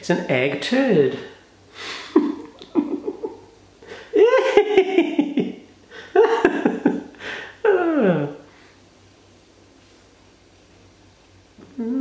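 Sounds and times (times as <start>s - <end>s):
person laughing high-pitched: 1.9s - 8.3s.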